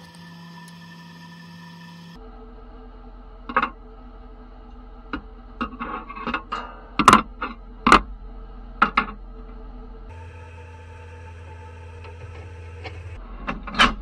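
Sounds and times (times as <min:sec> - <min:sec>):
steady low hum: 0:00.0 - 0:14.0
metal hooks clanking on steel grate: 0:05.7 - 0:08.0.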